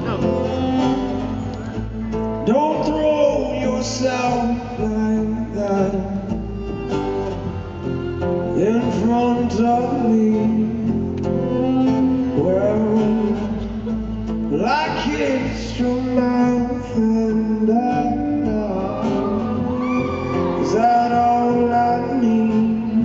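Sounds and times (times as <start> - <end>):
acoustic guitar: 0.0 - 23.0
low accompaniment: 0.0 - 23.0
man singing: 2.4 - 6.7, 8.5 - 13.9, 14.5 - 23.0.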